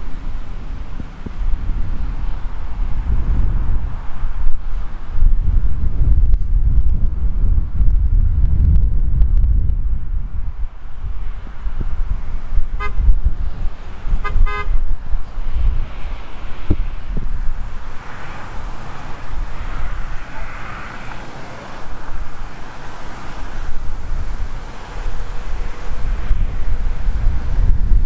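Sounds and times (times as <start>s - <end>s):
wind buffeting microphone: 0.0s - 28.0s
vehicle horn tooting: 12.8s - 13.1s, 14.2s - 14.8s.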